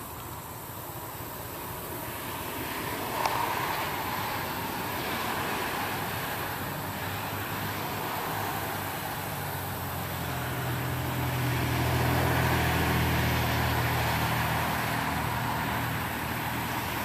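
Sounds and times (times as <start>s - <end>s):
road traffic passing: 0.0s - 17.0s.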